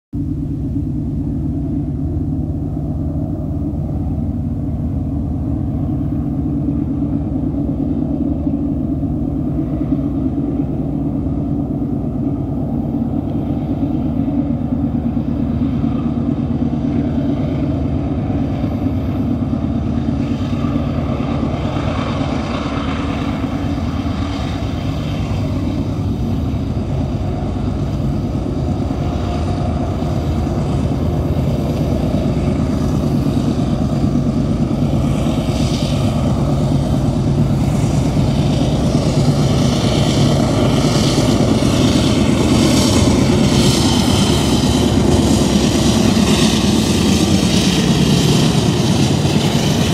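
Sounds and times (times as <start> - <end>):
diesel locomotive rumble: 0.1 - 49.9.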